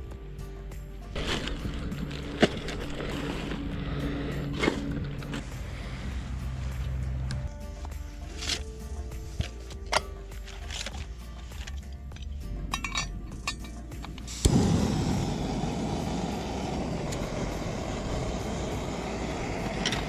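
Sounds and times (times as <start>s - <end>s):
metal camp pots clinking: 8.2s - 14.5s
gas stove hissing: 14.2s - 20.0s.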